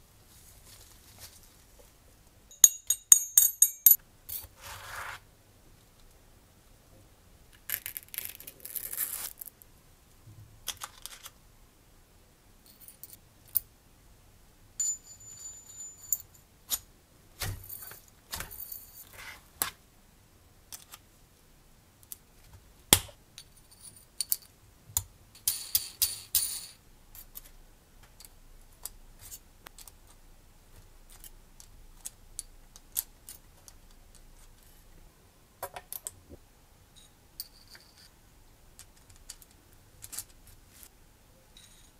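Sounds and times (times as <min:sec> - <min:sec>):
small metal parts clinking: 0:02.5 - 0:04.0, 0:14.8 - 0:16.8.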